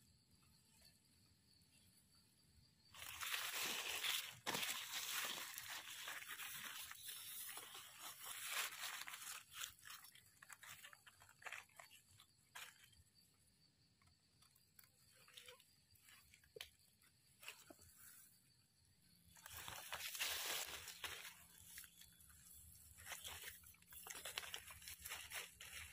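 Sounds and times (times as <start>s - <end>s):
rustling of dry leaves: 2.9s - 13.0s, 19.3s - 25.9s.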